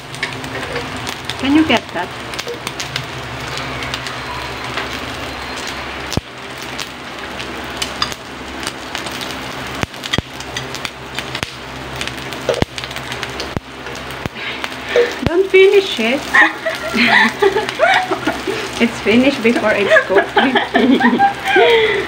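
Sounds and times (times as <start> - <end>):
meat sizzling on a grill: 0.0 - 22.0
utensils tapping the grill: 0.1 - 1.0, 10.0 - 11.5.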